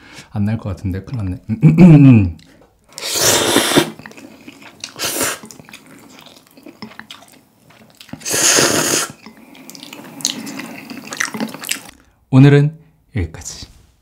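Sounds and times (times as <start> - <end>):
person slurping noodles: 2.9 - 7.0, 8.2 - 11.9
soft wet chewing: 3.9 - 8.3, 9.1 - 12.0.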